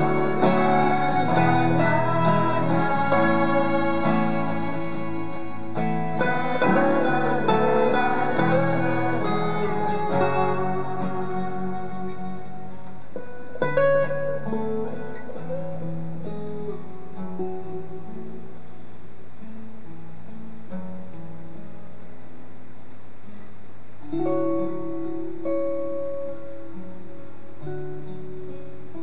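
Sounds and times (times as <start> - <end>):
bowed violin and cello: 0.0 - 13.0
acoustic guitars picking and strumming: 0.0 - 29.0.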